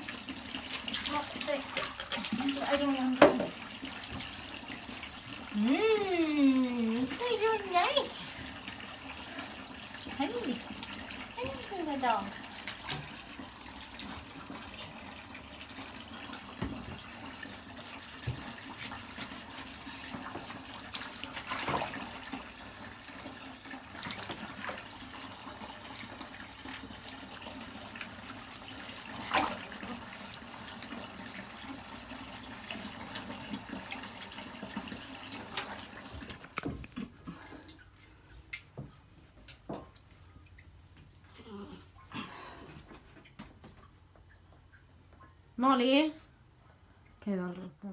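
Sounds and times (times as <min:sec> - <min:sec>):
water running in bathtub: 0:00.0 - 0:46.1
water splashing: 0:23.6 - 0:38.8.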